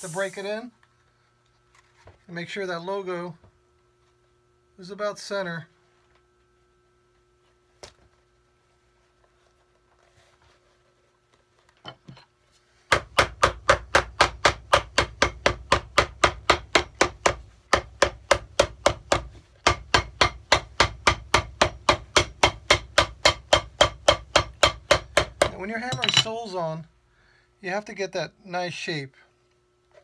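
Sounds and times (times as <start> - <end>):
hammer tapping leather sole: 12.9 - 25.6.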